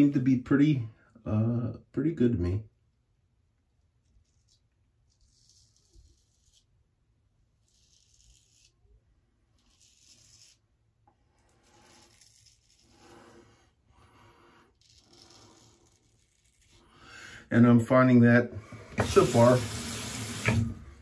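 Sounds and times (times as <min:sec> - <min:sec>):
razor scraping stubble: 0:04.0 - 0:06.8, 0:07.5 - 0:17.0.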